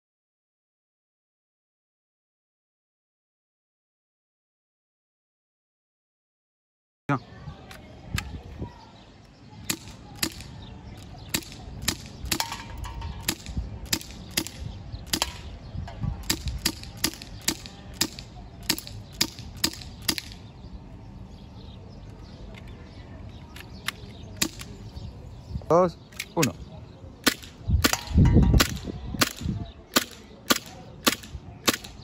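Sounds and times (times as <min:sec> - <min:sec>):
airsoft pistol shots: 0:09.6 - 0:10.5, 0:11.3 - 0:15.5, 0:16.2 - 0:20.4, 0:24.4 - 0:24.8, 0:27.2 - 0:32.0.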